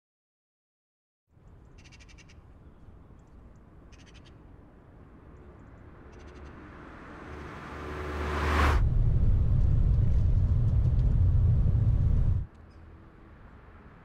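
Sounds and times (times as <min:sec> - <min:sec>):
car driving past: 0:05.5 - 0:12.5
low rumble: 0:07.0 - 0:12.5.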